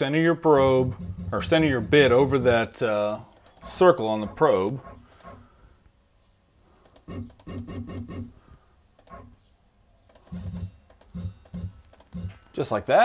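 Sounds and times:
stepper motor buzzes with clicks: 6.8s - 8.2s, 9.0s - 9.3s, 10.1s - 12.5s.

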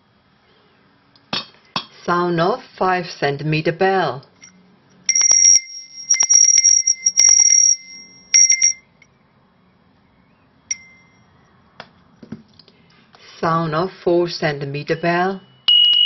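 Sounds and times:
metal hand bell ringing: 4.4s - 8.9s, 10.7s - 11.3s.

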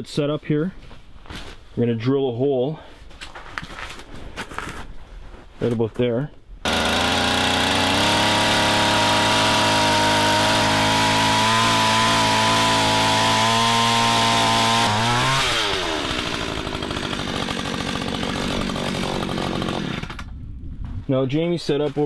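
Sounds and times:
ice auger engine: 6.7s - 20.3s.

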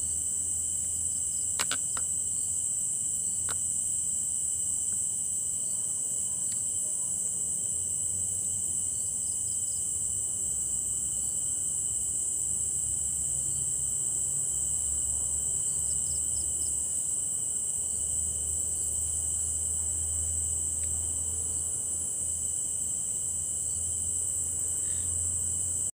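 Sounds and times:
crickets chirring: 0.0s - 26.0s.

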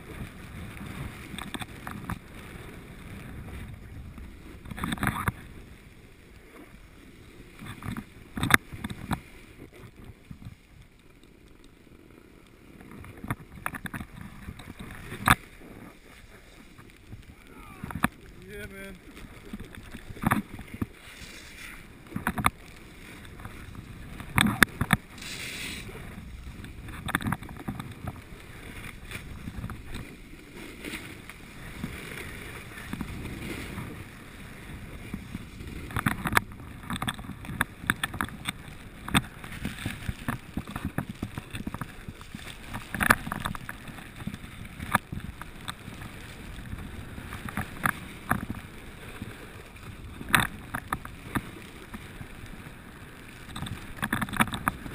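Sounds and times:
sliding on packed snow: 0.0s - 54.9s
wind on microphone: 12.8s - 54.9s.

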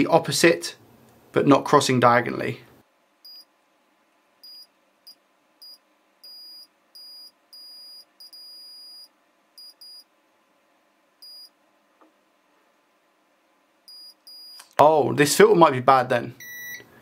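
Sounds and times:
multimeter beeping: 3.2s - 3.5s, 4.4s - 10.1s, 11.2s - 11.5s, 13.9s - 14.7s, 16.4s - 16.9s.

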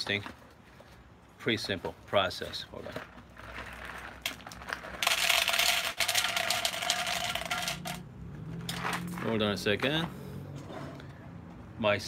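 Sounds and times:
coffee beans rattling into a cup: 3.4s - 8.0s.

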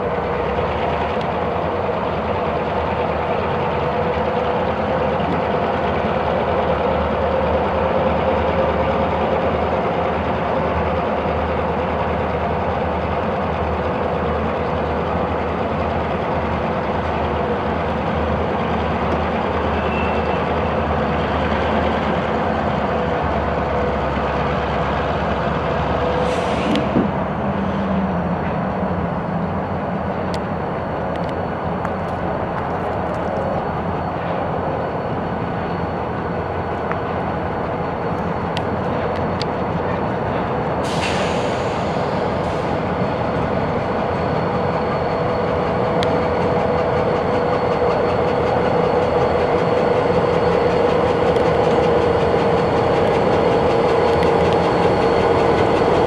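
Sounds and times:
diesel locomotive engine drone: 0.0s - 56.0s
short hisses: 26.2s - 26.8s.

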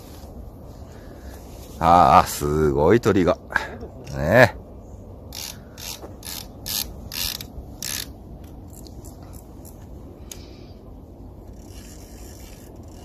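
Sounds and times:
fishing reel ratcheting clicks: 5.3s - 8.2s, 11.5s - 13.0s.

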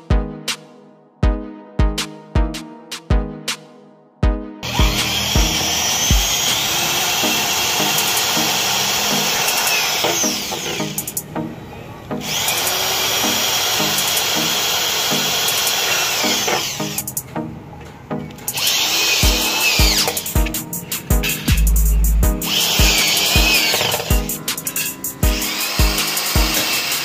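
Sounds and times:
background music with steady beat: 0.0s - 27.0s
cordless drill driving screws: 4.6s - 11.2s, 12.2s - 17.0s, 18.5s - 20.4s, 22.5s - 27.0s.

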